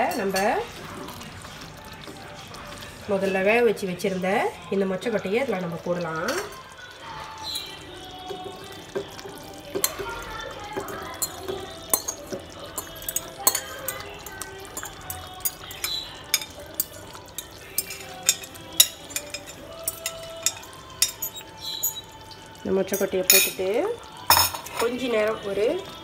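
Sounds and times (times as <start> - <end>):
spoon clinking on glass bowl: 9.7 - 10.1, 10.8 - 22.2, 22.9 - 25.0.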